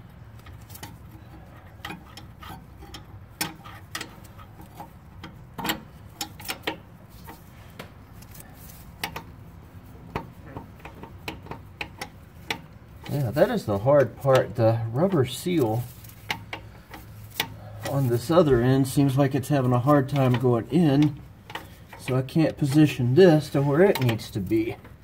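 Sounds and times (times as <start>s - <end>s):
low steady hum: 0.0s - 25.0s
small metallic clicks and taps: 0.3s - 13.2s, 16.0s - 18.0s, 20.1s - 23.0s.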